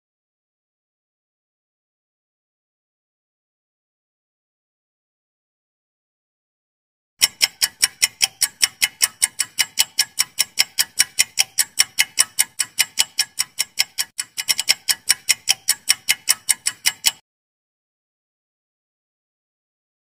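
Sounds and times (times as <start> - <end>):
countdown timer ticking: 7.2 - 17.2.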